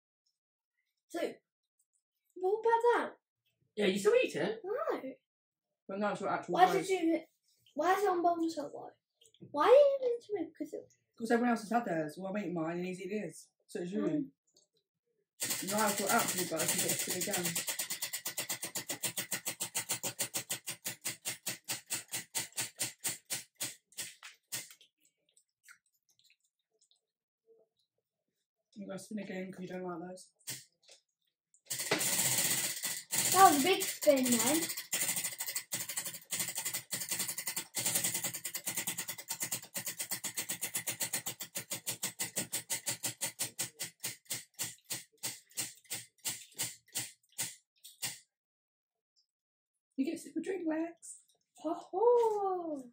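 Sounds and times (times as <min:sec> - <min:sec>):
prize wheel ticking: 0:15.4 - 0:24.6, 0:31.7 - 0:48.2.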